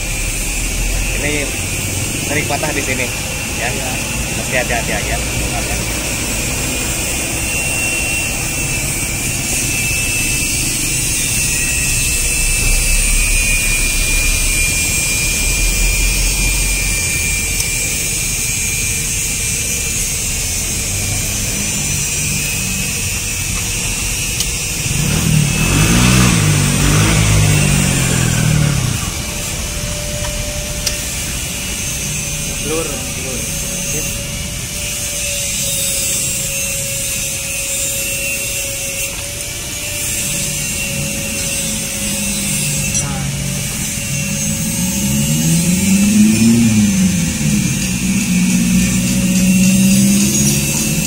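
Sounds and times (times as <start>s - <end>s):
background traffic: 0.0s - 51.0s
vehicle passing close by: 24.8s - 30.0s, 40.6s - 51.0s.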